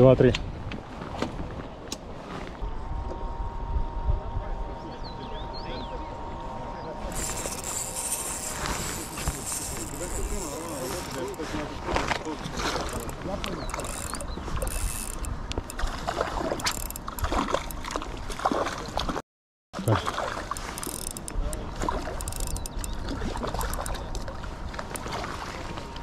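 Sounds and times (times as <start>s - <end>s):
fishing reel gears whirring and clicking: 7.1s - 18.0s, 20.4s - 25.1s.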